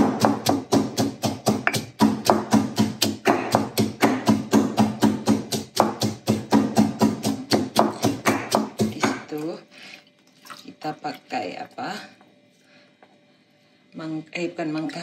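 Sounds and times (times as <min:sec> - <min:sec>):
pestle pounding in stone mortar: 0:00.0 - 0:09.4.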